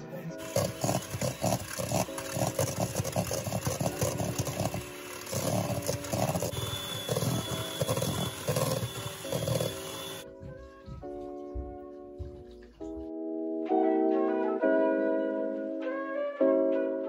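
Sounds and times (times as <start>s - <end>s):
beaters knocking metal bowl: 0.4s - 10.2s
electric hand mixer running: 0.4s - 10.2s.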